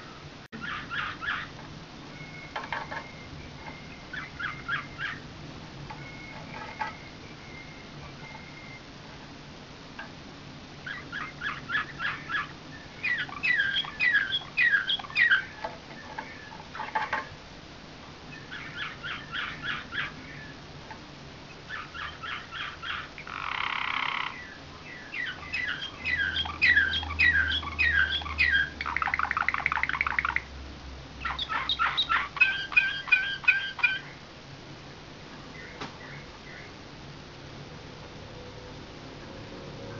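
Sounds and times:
canary singing: 0.0 - 9.4, 10.8 - 17.4, 18.3 - 20.7, 21.5 - 30.5, 31.2 - 34.2, 35.4 - 36.8.

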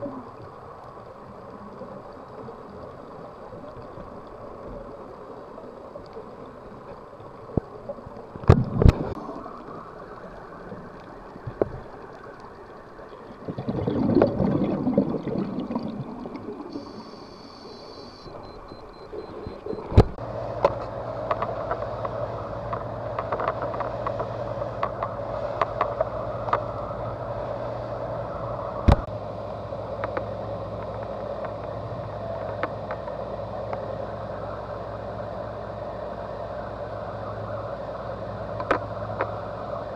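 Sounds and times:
low boat engine hum: 0.0 - 39.9
underwater bubbling: 0.0 - 39.9
underwater clicks and knocks: 8.3 - 9.2, 19.4 - 26.7, 32.4 - 33.1, 38.6 - 39.4.

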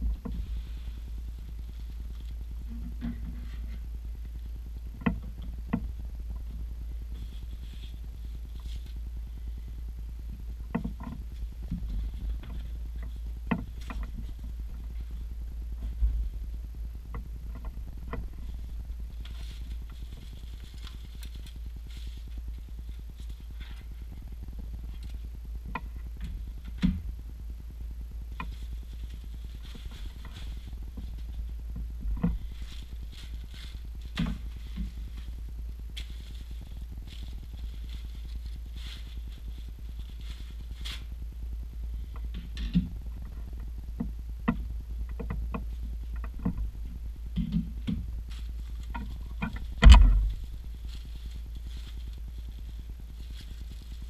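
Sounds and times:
steady low hum: 0.0 - 54.0
plastic packaging rustling: 32.3 - 41.2, 48.3 - 54.0.

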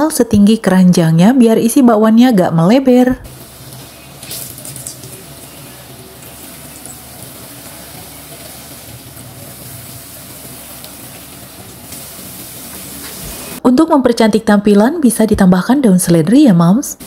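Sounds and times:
fritters sizzling in oil: 3.3 - 13.6.

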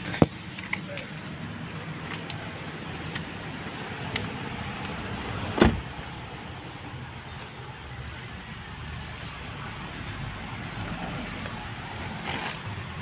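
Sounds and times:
outdoor background noise: 0.0 - 13.0
car door thump: 5.5 - 5.9.

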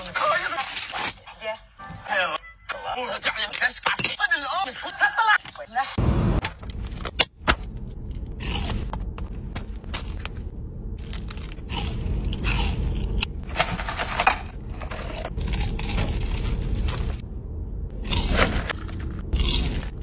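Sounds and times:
low hum: 6.0 - 20.0
fried chicken crunching: 11.0 - 13.4, 18.0 - 20.0.

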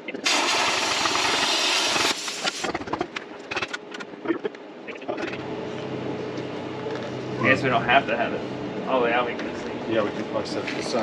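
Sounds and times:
plasma cutter hissing: 0.2 - 2.7.

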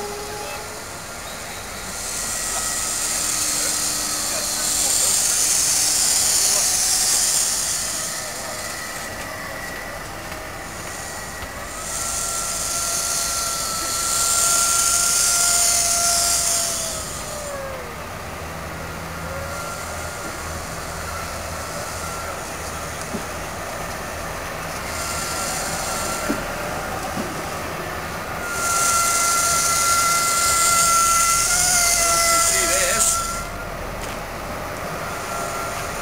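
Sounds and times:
air hiss bursts: 0.0 - 9.4, 10.6 - 17.5, 24.8 - 33.6
low steady drone: 0.0 - 36.0
wheels squealing: 0.0 - 36.0.

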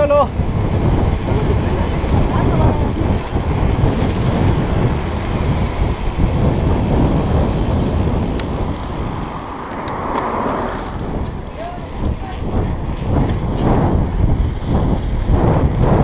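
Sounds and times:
bike tyre rumble on pavement: 0.0 - 16.0
wind buffeting microphone: 0.0 - 16.0
sharp clicks: 8.3 - 10.3.

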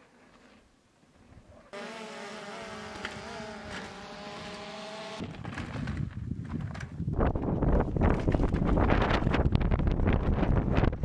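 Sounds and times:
drone propellers buzzing: 1.8 - 5.4.

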